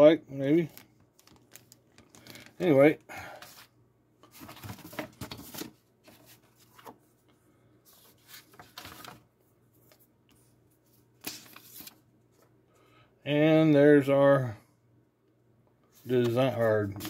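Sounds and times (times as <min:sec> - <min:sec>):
paper and cardboard rustling: 0:03.4 - 0:07.1, 0:07.9 - 0:10.1, 0:11.2 - 0:12.4, 0:16.0 - 0:17.0.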